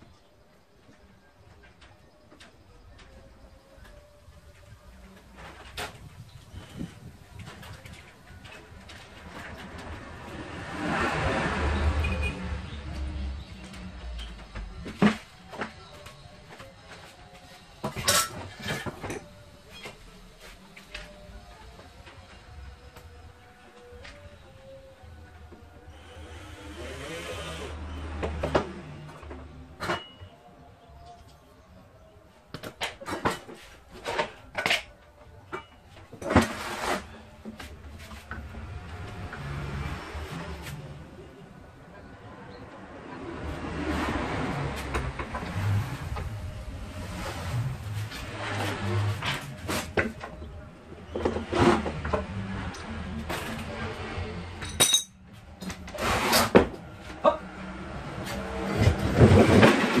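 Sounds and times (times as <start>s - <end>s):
table scraping on tiled floor: 36.2s - 37.2s, 55.9s - 56.8s
clatter of table on floor: 54.6s - 56.8s.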